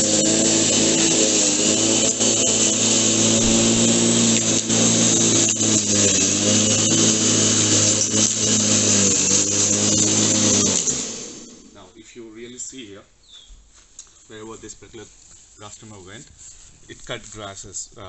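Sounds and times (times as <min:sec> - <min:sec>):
lawnmower motor whine: 0:00.0 - 0:11.8.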